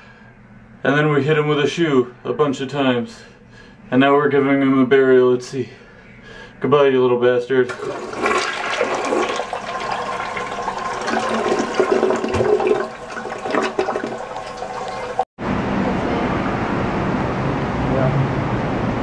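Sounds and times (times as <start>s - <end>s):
toilet flushing: 7.7s - 15.3s.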